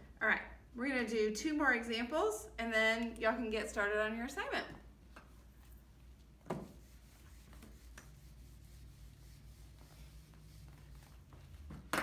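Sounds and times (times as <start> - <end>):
eraser wiping whiteboard: 6.5 - 11.7.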